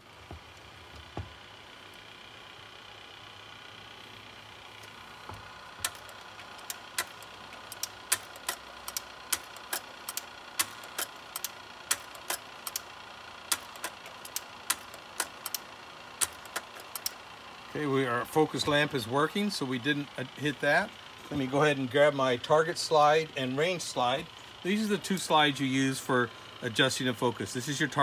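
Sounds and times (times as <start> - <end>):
projector motor hum: 0.0 - 28.0
sharp mechanical clicks: 5.8 - 12.9, 13.5 - 17.2.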